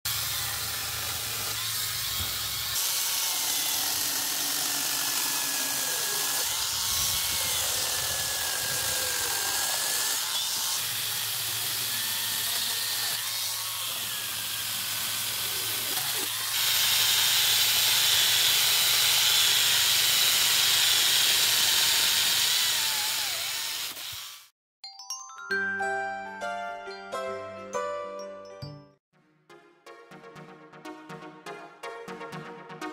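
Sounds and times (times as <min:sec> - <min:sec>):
electric chainsaw cutting branches: 0:00.1 - 0:24.5.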